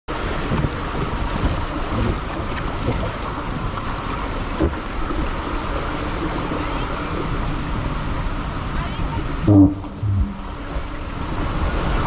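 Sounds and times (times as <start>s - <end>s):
wind buffeting microphone: 0.1s - 5.5s, 6.1s - 12.0s
water rushing down a slide: 0.1s - 12.0s.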